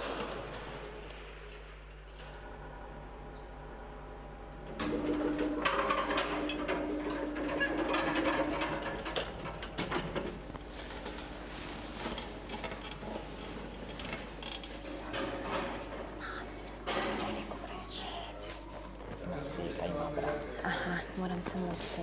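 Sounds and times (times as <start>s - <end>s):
wheelchair clicking and rattling: 4.8s - 17.6s.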